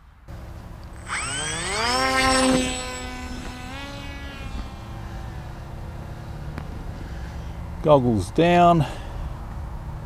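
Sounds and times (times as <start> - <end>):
electric plane motor whining: 0.9 - 6.6.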